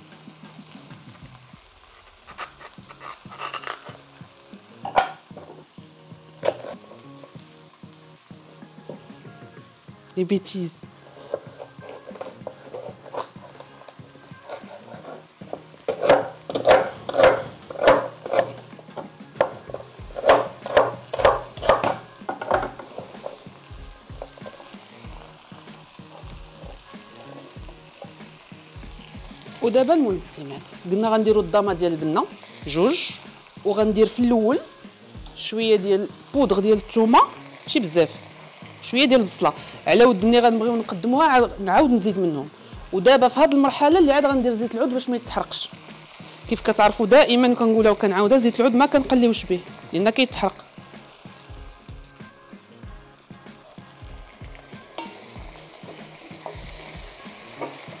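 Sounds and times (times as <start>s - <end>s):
soft background music: 0.0s - 58.0s
fennel bulb cracking and snapping: 2.0s - 4.0s, 20.2s - 21.9s
knife chopping on wooden board: 15.9s - 18.6s, 19.4s - 22.8s.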